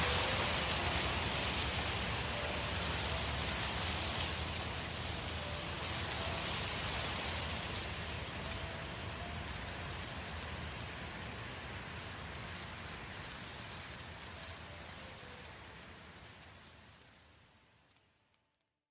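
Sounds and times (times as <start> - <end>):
forest fire crackling: 0.0 - 18.8.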